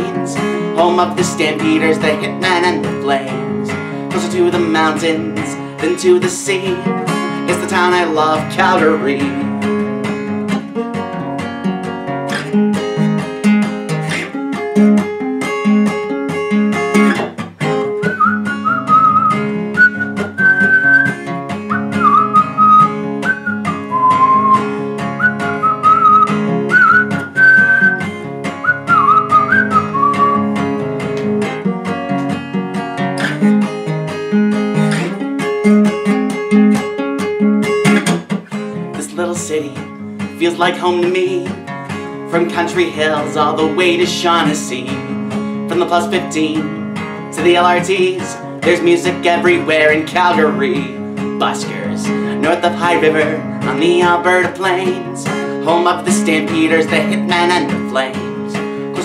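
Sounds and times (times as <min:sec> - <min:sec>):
acoustic guitar playing: 0:00.0 - 0:59.0
person whistling a melody: 0:17.9 - 0:30.6.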